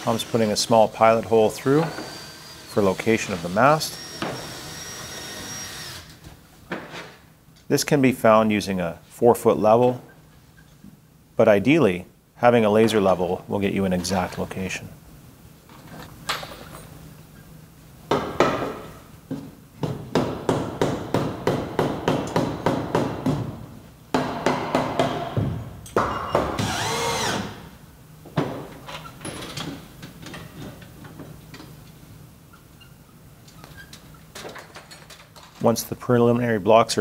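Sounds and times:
cordless drill whirring: 1.9 - 6.1, 26.6 - 27.5.

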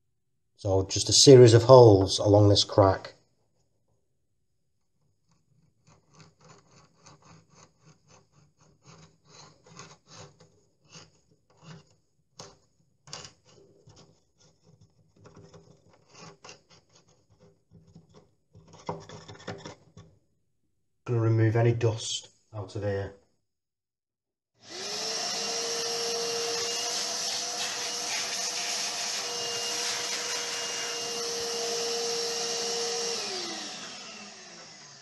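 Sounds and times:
screwdriver scraping plaster: 4.8 - 20.1, 24.8 - 35.0.

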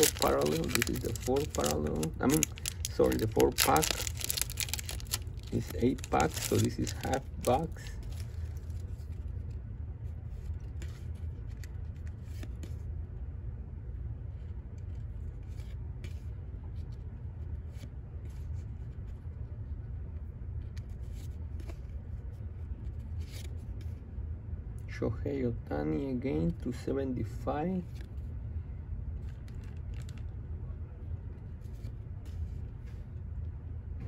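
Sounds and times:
cards being flipped: 0.0 - 9.2, 23.2 - 23.5
steady low hum: 0.0 - 34.0.

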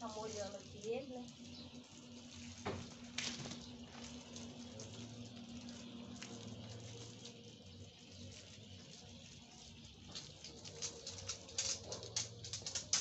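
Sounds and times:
water stream pattering on wet rug: 0.0 - 13.0.

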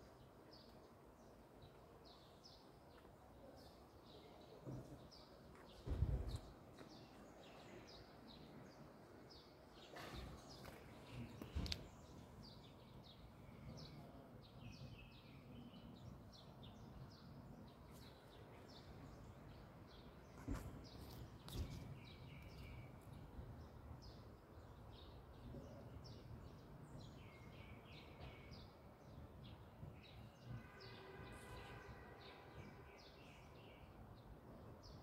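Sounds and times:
birds chirping: 0.0 - 33.9.

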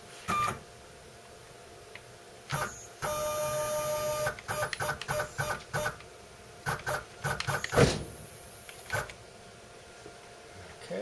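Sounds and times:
stepper motor whine: 2.5 - 6.0.

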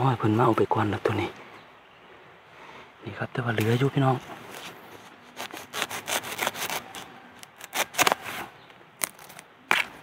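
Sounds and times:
dry leaves crackling and rustling: 4.4 - 10.0.

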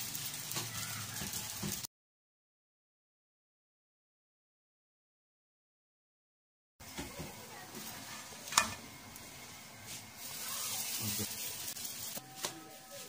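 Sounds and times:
flatbread sizzling on pan: 0.0 - 1.9, 6.8 - 13.0.

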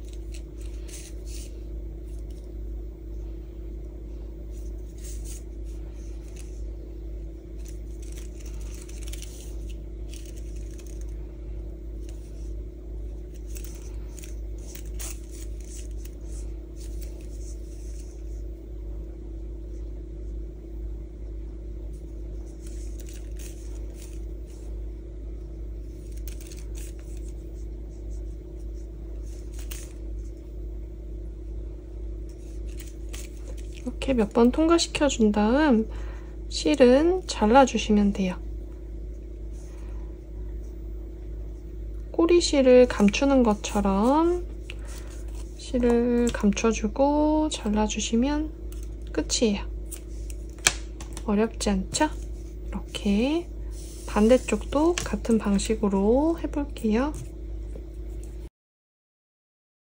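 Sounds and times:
yarn scratching and rustling: 0.0 - 2.5, 4.5 - 6.8, 7.4 - 11.2, 12.0 - 18.5, 22.4 - 24.8, 25.8 - 30.5, 32.3 - 34.7
steady low hum: 0.0 - 58.5.

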